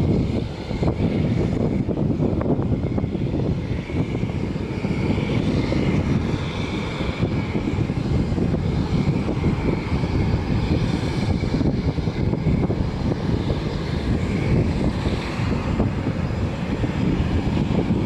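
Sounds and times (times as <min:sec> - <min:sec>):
aircraft engine rumble: 0:00.0 - 0:18.0.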